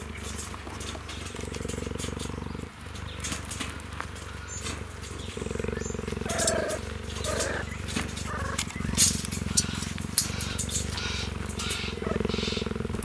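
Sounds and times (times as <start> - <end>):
cheetah purring: 0.0 - 13.0
high-pitched animal calls: 5.3 - 13.0.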